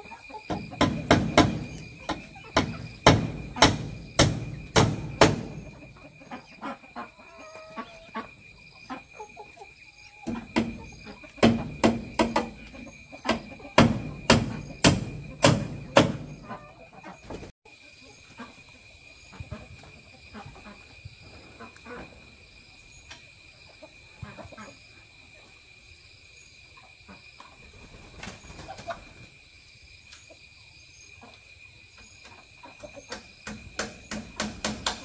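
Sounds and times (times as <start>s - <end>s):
hammer driving nails into wood: 33.5s - 35.0s.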